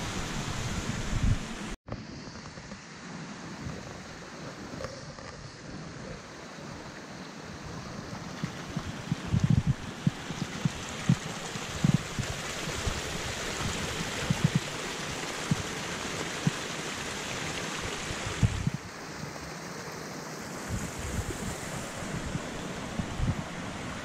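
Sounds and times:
creek rushing over rocks: 5.4 - 24.0.

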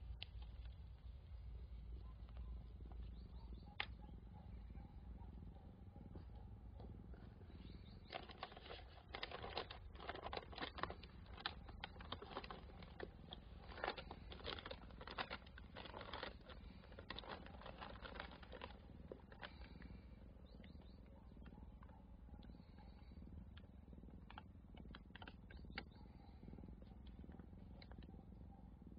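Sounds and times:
newspaper crinkling under paws: 8.1 - 19.6.

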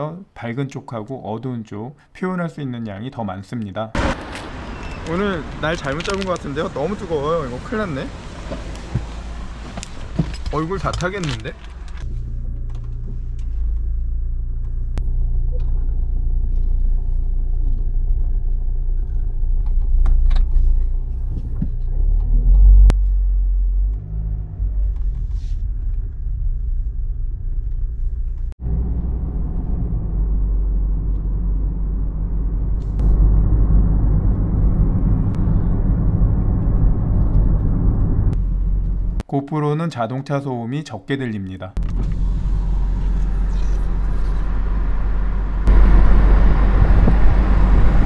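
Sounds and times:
engine and road rumble: 3.9 - 39.3, 41.8 - 48.0
hissy road noise: 4.0 - 12.0, 42.1 - 48.0.

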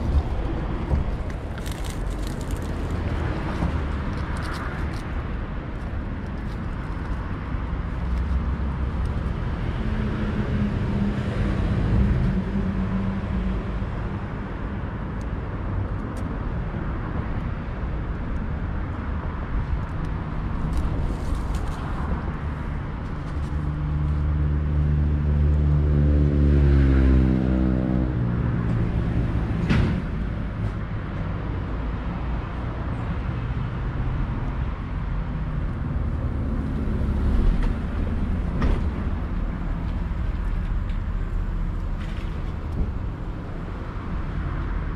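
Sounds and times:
traffic engines rumbling: 0.0 - 44.9
vehicle passing: 33.2 - 44.9.

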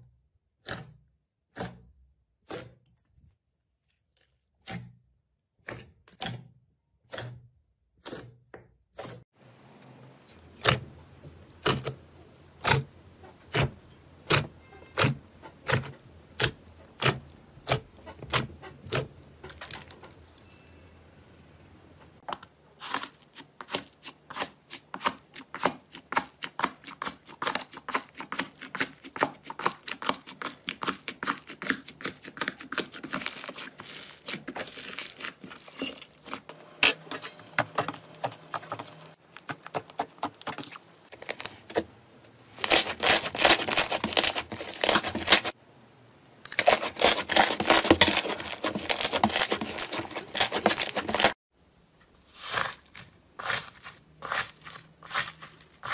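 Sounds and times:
slime crackling: 22.8 - 36.5, 42.6 - 45.6, 46.5 - 51.4.

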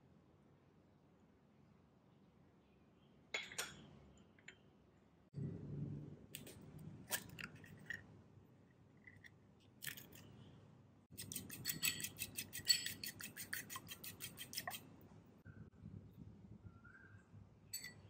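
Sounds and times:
fork beating egg in bowl: 11.1 - 14.9.

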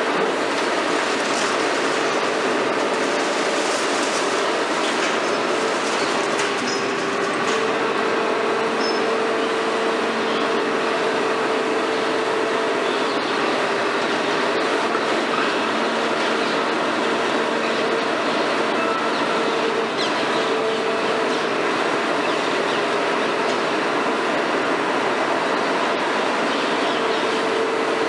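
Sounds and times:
hydraulic whine of excavator: 0.0 - 28.0
breaking concrete clatter: 0.6 - 7.7.

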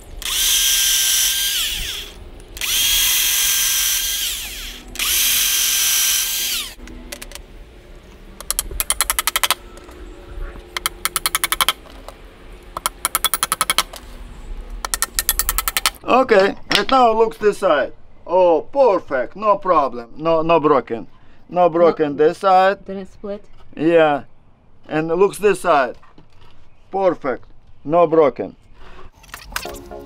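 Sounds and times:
electric drill boring into wood: 0.0 - 6.8.

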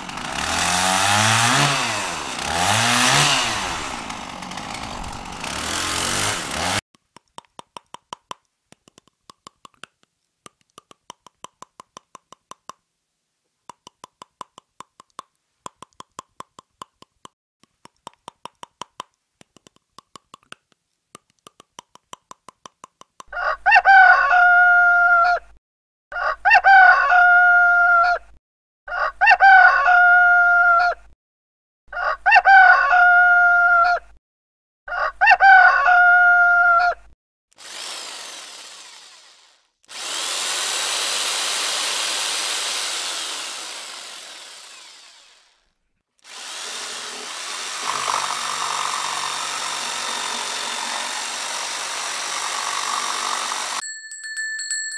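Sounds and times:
electric jigsaw running: 0.0 - 6.8, 37.6 - 53.8
teeth chattering: 7.0 - 12.8, 13.7 - 23.3
rooster crowing: 28.9 - 30.7, 32.0 - 33.8, 34.9 - 36.8
rushing hiss: 40.0 - 43.8.

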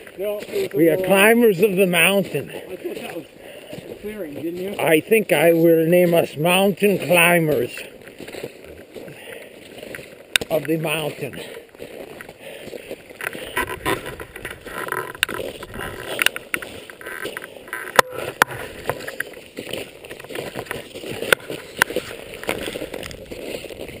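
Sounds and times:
clothing and pack rustling: 0.0 - 24.0
footsteps crunching in snow: 0.0 - 24.0.

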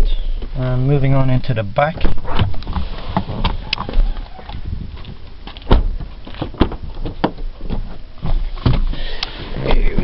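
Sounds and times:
light bumps and rustling: 1.8 - 10.0
truck door knocks: 5.7 - 7.9.

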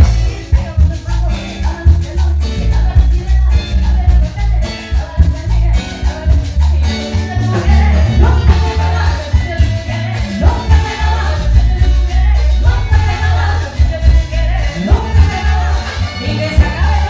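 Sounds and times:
heavy bass line: 0.0 - 17.0
latin dance band playing: 0.0 - 17.0
steady percussion: 0.0 - 17.0.

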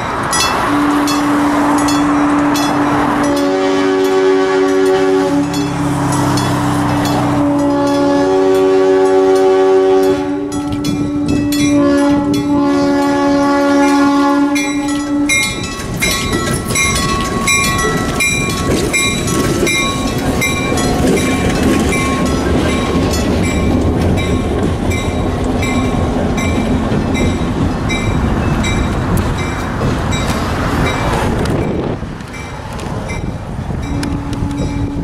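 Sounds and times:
crossing bell ringing: 0.0 - 35.0
locomotive engine and wheels rumbling: 0.0 - 35.0
locomotive horn blast: 0.5 - 15.7, 33.9 - 35.0.

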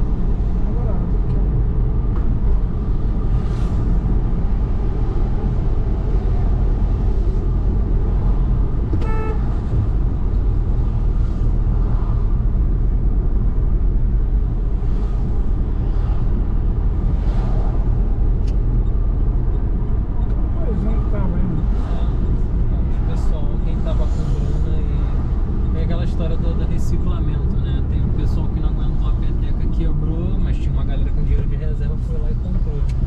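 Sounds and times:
car road and engine rumble: 0.0 - 33.0
vehicle horn toot: 9.0 - 9.6.

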